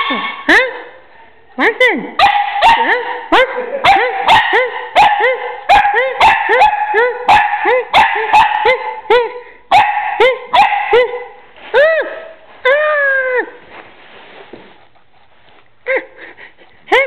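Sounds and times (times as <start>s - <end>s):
puppy barking: 2.2s - 9.0s, 9.7s - 11.4s.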